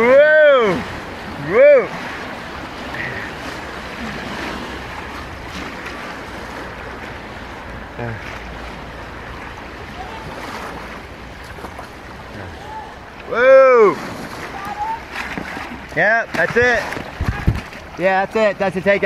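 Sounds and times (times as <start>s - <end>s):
white water rushing and splashing: 0.0s - 19.0s.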